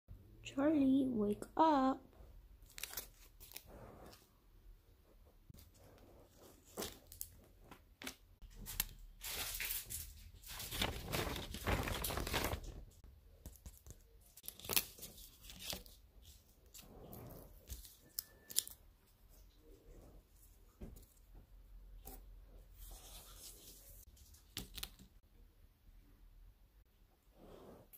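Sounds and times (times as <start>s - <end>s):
paper rustling and crinkling: 2.6s - 4.2s, 5.6s - 19.5s, 22.7s - 25.2s
sharp paper snaps: 13.4s - 16.0s, 24.5s - 25.1s.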